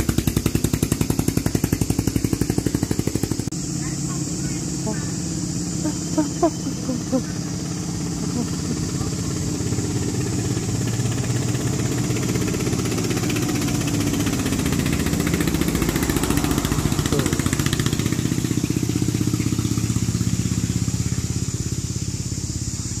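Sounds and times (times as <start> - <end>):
diesel engine chugging: 0.0 - 23.0.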